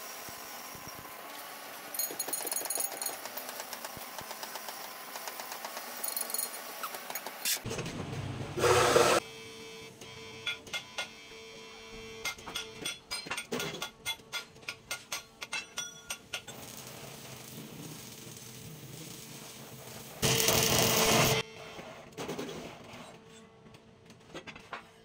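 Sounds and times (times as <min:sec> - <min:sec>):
arc welding crackling: 0:16.3 - 0:21.4.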